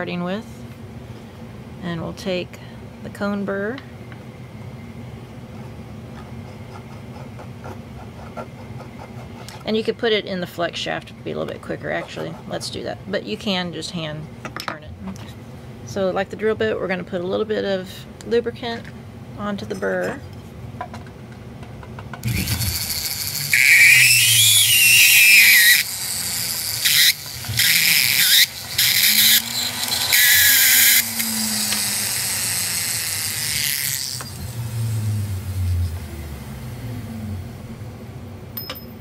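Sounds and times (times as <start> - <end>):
rotary tool cutting metal: 22.2 - 36.1
high squeal of burr: 22.3 - 25.9, 26.9 - 32.3.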